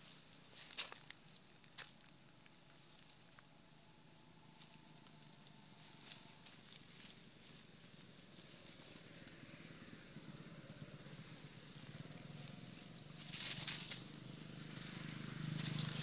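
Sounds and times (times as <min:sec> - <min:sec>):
dry leaves crackling and rustling: 0:04.6 - 0:10.0, 0:10.8 - 0:16.0.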